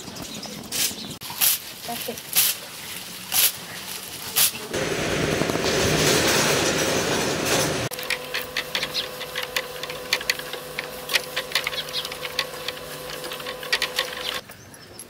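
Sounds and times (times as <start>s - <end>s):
steady hum: 4.5s - 14.4s
dense rushing noise: 4.8s - 7.9s
bamboo strips clicking and tapping: 7.9s - 14.4s.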